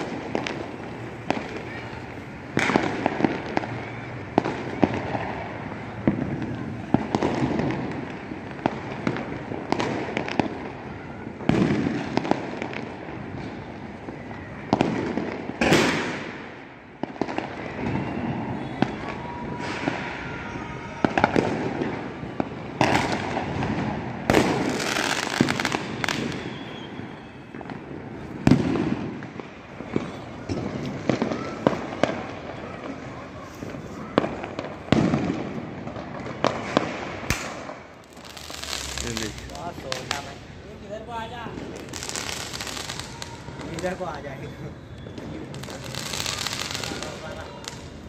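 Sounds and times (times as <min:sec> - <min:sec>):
fireworks bangs: 0:00.0 - 0:48.0
fireworks crackling: 0:00.0 - 0:48.0
faint firework whistle: 0:01.3 - 0:07.0, 0:17.2 - 0:23.4, 0:24.3 - 0:37.7, 0:41.6 - 0:48.0.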